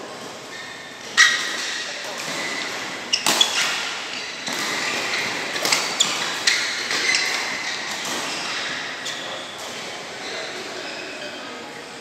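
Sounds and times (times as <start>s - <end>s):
large hall background noise: 0.0s - 12.0s
rackets hitting shuttlecock: 1.1s - 9.9s.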